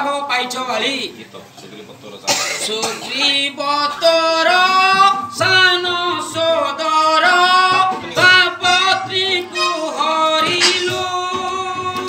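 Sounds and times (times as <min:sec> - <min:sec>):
man singing long held notes: 0:03.2 - 0:12.0.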